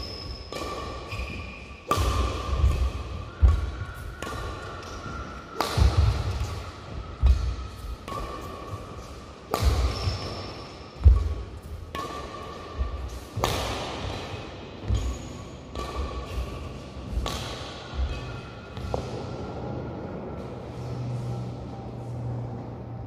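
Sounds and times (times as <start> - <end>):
shoe squeaks: 0.0 - 11.4, 14.9 - 16.8
racket hitting shuttlecock: 0.0 - 19.2.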